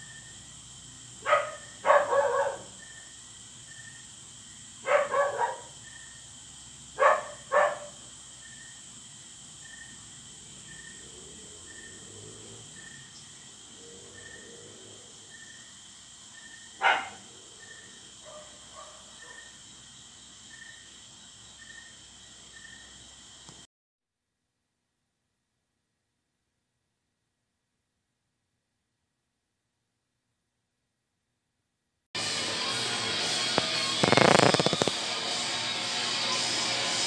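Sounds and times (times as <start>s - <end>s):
crickets chirping: 0.0s - 23.7s, 32.2s - 37.0s
dog barking: 1.2s - 2.8s, 4.8s - 5.8s, 7.0s - 8.0s, 16.8s - 19.6s.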